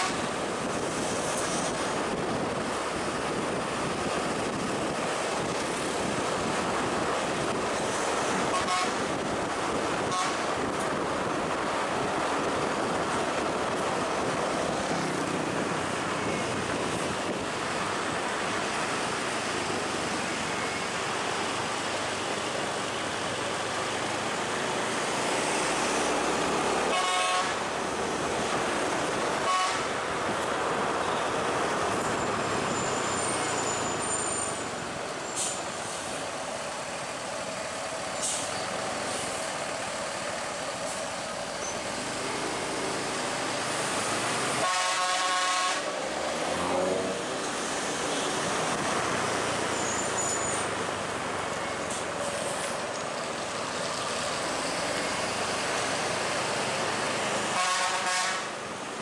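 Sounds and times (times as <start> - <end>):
heavy vehicle engine and road noise: 0.0 - 59.0
vehicle horn toots: 8.5 - 9.0, 10.1 - 10.4, 26.9 - 27.6, 29.4 - 29.9, 44.6 - 45.9, 57.6 - 58.5.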